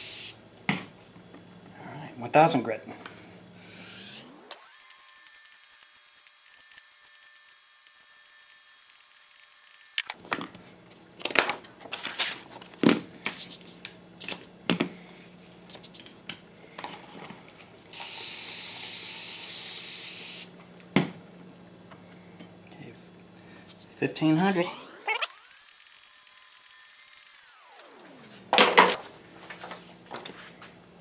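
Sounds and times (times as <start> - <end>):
spray bottle spraying water: 24.3 - 25.3.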